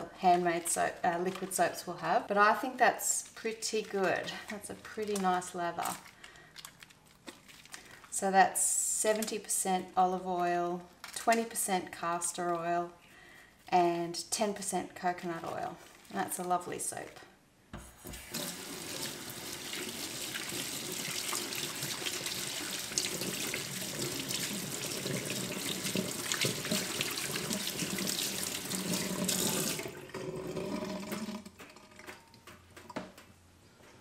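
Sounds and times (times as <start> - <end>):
tap water splashing into sink: 18.2 - 32.2.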